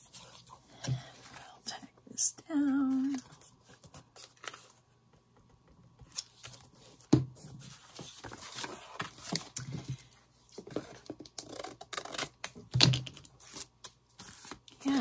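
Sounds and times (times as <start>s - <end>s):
paper rustling and scraping: 6.1s - 12.0s.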